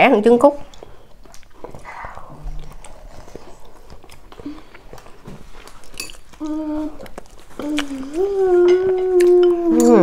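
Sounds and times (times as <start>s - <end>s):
people chewing: 0.6s - 10.0s
chopsticks clicking against bowls: 6.0s - 10.0s
child's voice: 7.6s - 10.0s.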